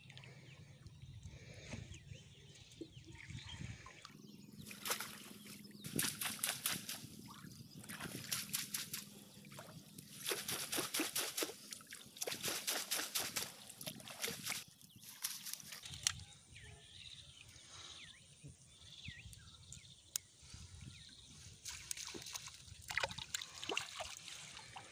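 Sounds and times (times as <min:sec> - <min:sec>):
water splashing and sloshing: 0:00.0 - 0:16.3, 0:21.5 - 0:24.9.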